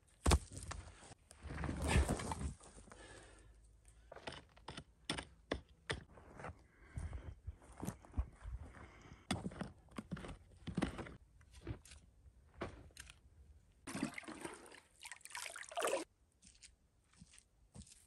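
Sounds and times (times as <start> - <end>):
soil scraping and knocking: 0.0 - 2.8, 9.3 - 13.2
faint footsteps on dry ground: 6.1 - 13.1, 16.4 - 18.0
water pouring into bucket: 13.9 - 16.1.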